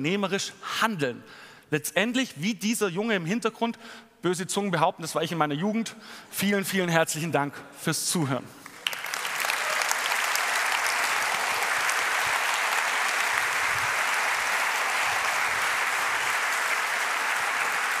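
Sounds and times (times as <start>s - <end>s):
large audience applauding: 8.6s - 18.0s.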